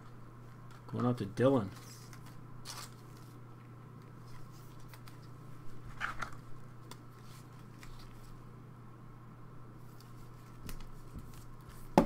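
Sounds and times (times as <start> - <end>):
steady low hum: 0.0 - 12.0
trading cards rustling and sliding: 0.6 - 3.4, 4.0 - 8.4.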